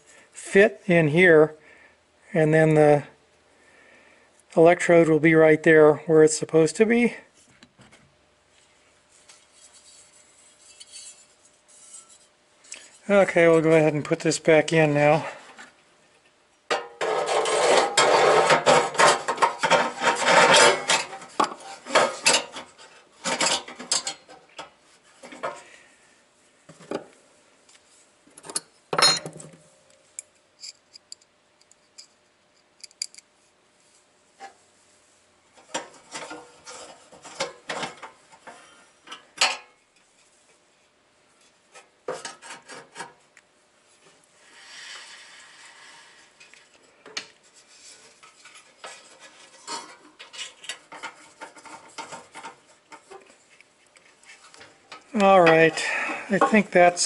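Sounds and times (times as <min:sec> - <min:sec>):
metal scraping and rubbing: 0:09.1 - 0:13.8, 0:16.8 - 0:24.2, 0:47.5 - 0:53.6.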